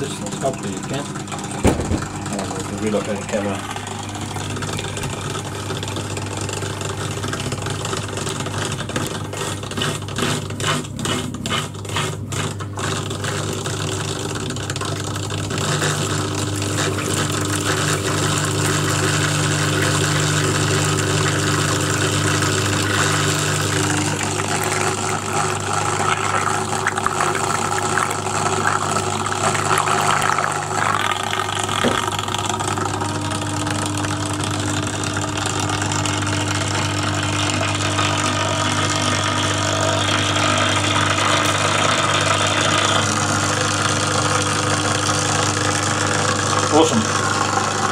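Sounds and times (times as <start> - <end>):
electric pump motor humming: 0.0 - 47.9.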